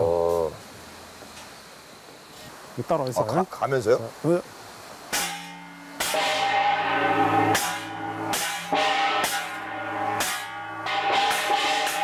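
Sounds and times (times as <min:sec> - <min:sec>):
gongs struck with mallets: 0:05.1 - 0:12.0.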